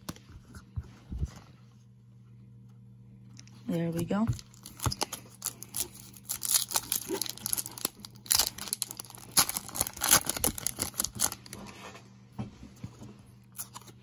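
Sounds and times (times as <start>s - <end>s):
wrapper tearing and crinkling: 4.4s - 11.6s.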